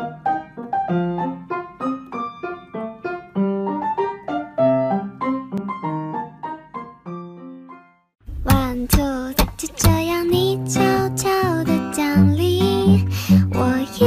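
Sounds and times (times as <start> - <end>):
piano melody: 0.0 - 14.0.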